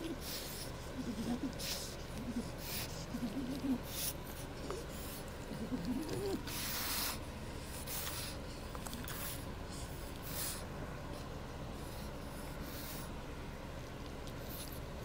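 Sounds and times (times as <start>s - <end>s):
puppy whimpering faintly: 0.0s - 6.9s.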